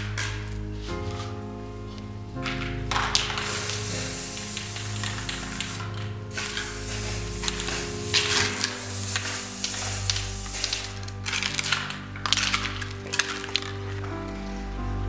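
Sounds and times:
background music: 0.0s - 15.0s
paint spray hissing: 2.9s - 13.8s.

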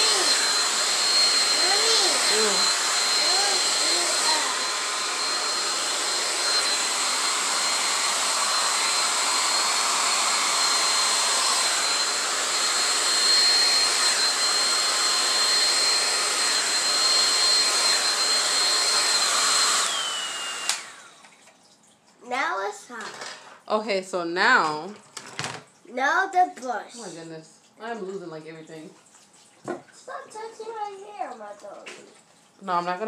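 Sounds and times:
blow dryer running: 0.0s - 21.3s.

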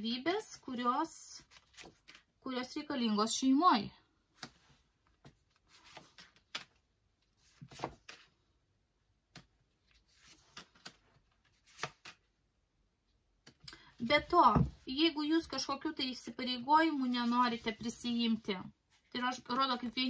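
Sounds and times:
cards sliding and tapping: 4.4s - 6.8s, 7.4s - 8.3s, 9.3s - 12.2s.

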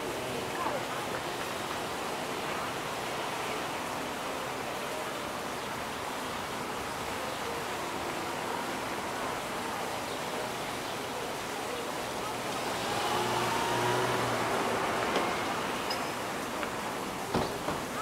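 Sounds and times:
car driving slowly past: 12.3s - 18.0s.

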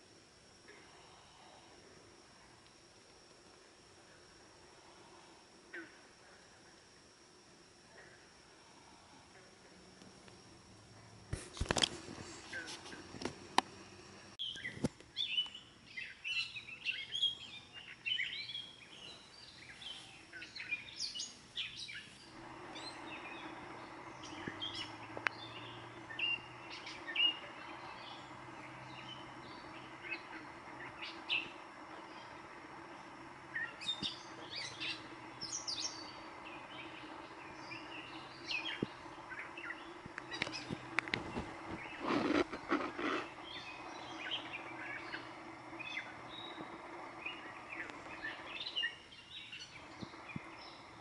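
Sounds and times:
faint steady hum: 0.0s - 51.0s
birds chirping and singing: 14.4s - 51.0s.

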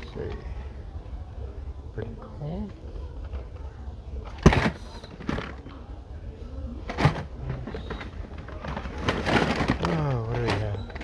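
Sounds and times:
plastic packs clacking and rustling: 4.2s - 5.8s, 6.9s - 11.0s.

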